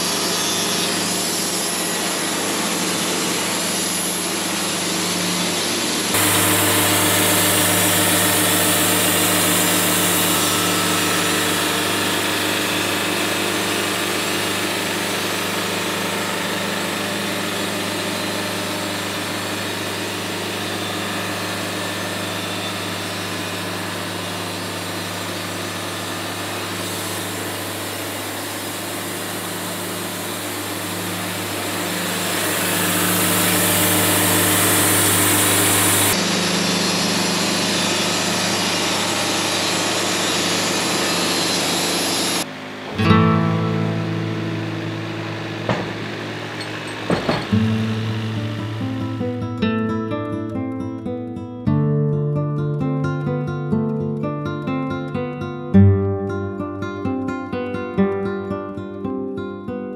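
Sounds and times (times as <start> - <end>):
sawmill engine running: 0.0 - 49.6
band blade cutting wood: 31.7 - 36.2.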